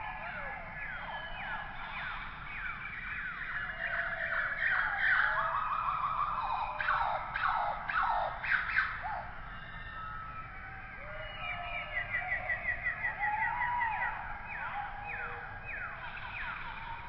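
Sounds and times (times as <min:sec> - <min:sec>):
cheetah chirping: 0:11.2 - 0:17.0.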